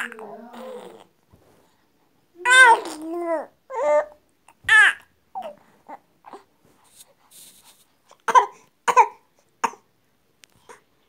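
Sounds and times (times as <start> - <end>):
infant vocalizing: 0.0 - 1.1, 2.4 - 6.5.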